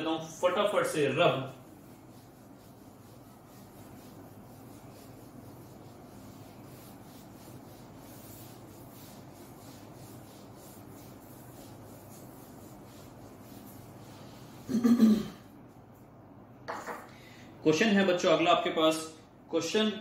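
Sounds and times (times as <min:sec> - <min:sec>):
whiteboard being wiped: 0:00.0 - 0:14.9.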